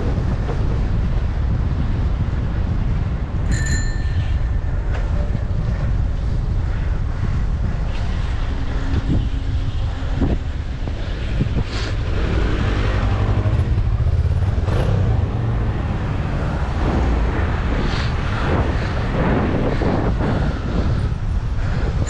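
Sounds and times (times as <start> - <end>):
wind buffeting microphone: 0.0 - 22.0
bicycle bell ring: 3.5 - 4.6.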